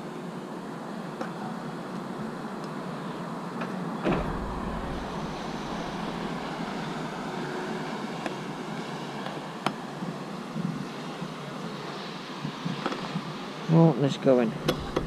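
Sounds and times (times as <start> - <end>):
steady background rumble: 4.0 - 10.9.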